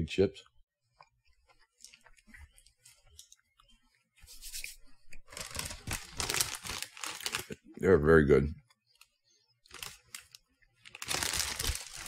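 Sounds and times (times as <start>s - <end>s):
cookie crunching: 9.7s - 12.0s.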